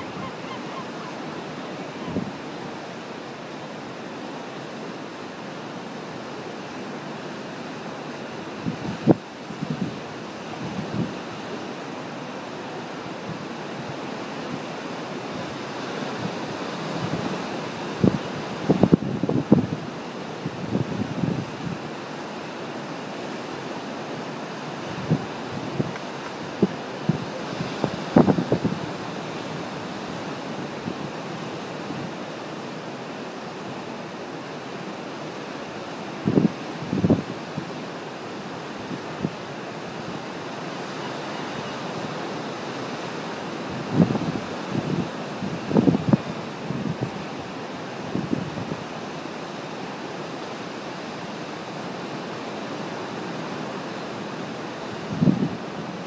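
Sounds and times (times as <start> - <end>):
wind on microphone: 0.0 - 3.5, 8.5 - 11.6, 13.1 - 22.4, 24.1 - 33.9, 36.1 - 49.2, 50.5 - 56.0
ocean surf over rocks: 0.0 - 56.0.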